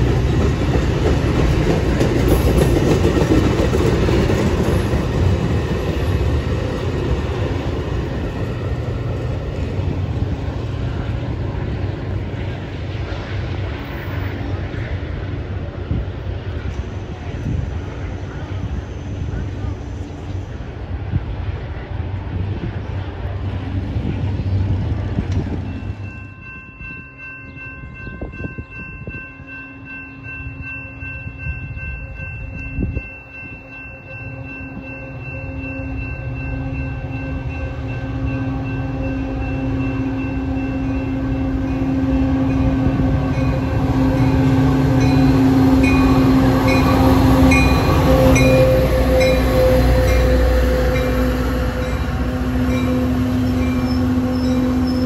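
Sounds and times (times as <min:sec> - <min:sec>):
diesel train passing: 0:00.0 - 0:55.0.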